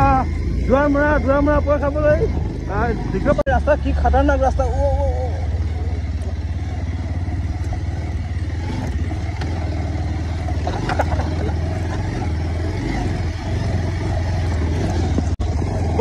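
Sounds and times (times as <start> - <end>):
motorcycle riding on dirt track: 0.0 - 16.0
short rattles: 10.5 - 12.1.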